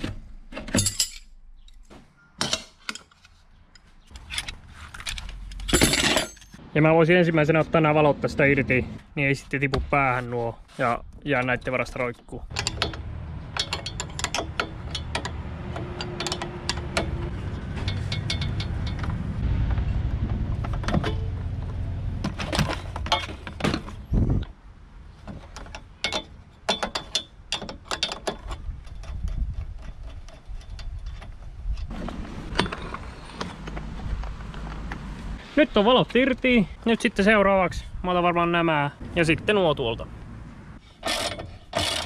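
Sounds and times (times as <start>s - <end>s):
metal parts clinking: 0.6s - 1.8s, 2.4s - 6.6s, 12.5s - 15.3s, 17.8s - 19.1s.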